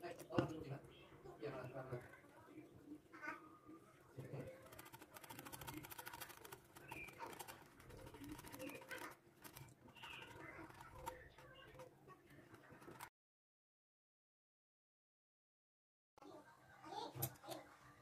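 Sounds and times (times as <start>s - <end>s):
whisk beating batter in glass bowl: 4.4s - 13.1s.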